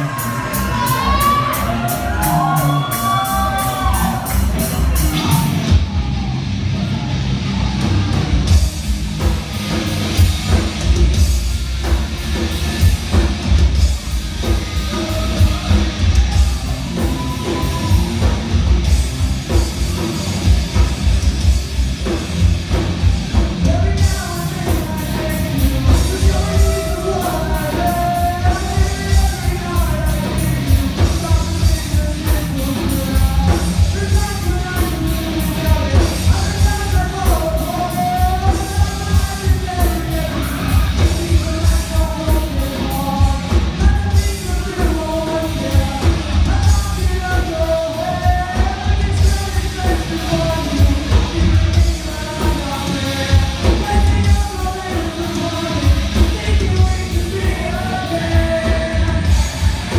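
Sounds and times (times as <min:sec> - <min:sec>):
person singing: 0:00.0 - 0:07.1, 0:23.0 - 0:59.9
live rock band playing: 0:00.0 - 0:59.9.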